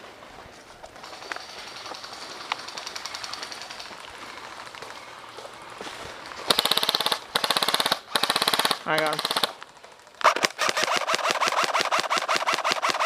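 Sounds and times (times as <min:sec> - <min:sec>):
distant rapid airsoft ticking: 0:01.0 - 0:04.7, 0:06.5 - 0:13.0.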